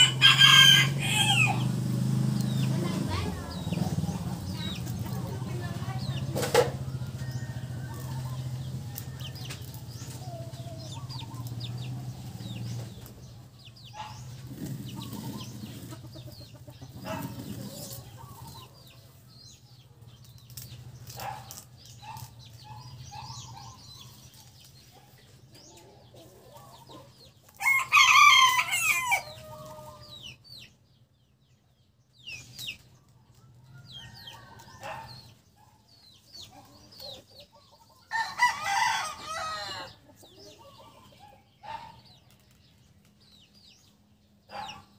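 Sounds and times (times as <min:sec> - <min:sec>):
rooster crowing: 0:00.0 - 0:01.8, 0:27.6 - 0:30.0, 0:38.1 - 0:40.0.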